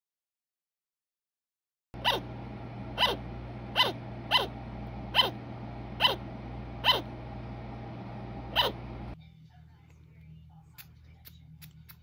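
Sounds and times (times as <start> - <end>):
sugar glider barking: 2.0 - 2.3, 2.9 - 7.2, 8.5 - 9.1.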